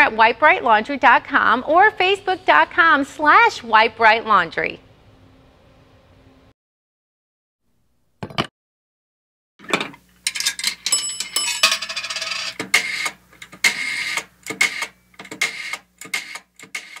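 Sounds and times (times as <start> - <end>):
metallic clicks and clatter: 10.2 - 12.6.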